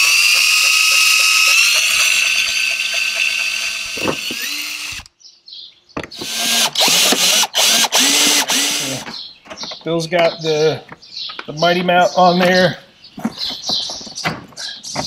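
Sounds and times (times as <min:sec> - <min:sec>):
cordless drill drilling into plastic: 0:00.0 - 0:05.1, 0:06.2 - 0:09.0.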